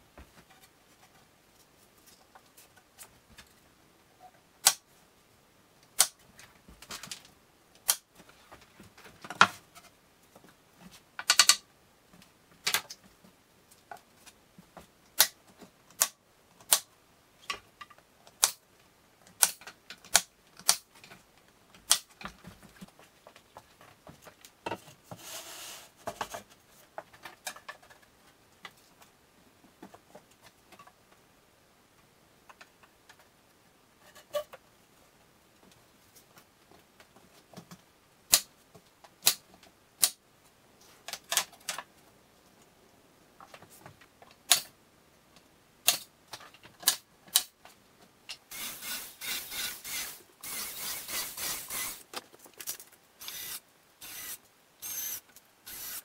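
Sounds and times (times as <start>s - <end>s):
scraping sound: 25.2s - 26.0s.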